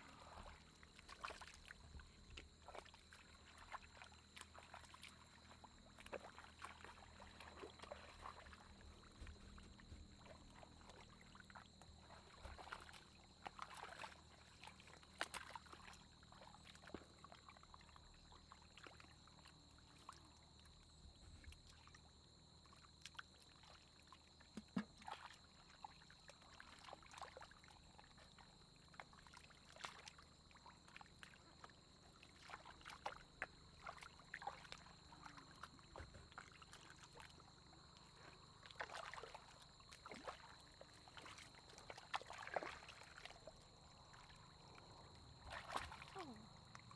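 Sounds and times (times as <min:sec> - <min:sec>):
hands splashing through mud and water: 0:45.4 - 0:46.4.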